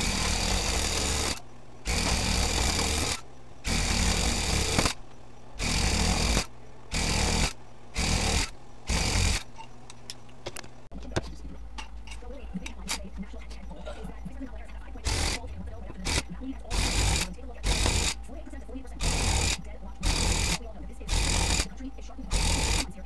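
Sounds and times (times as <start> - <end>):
electric tufting gun running: 0.0 - 9.5, 14.9 - 23.0.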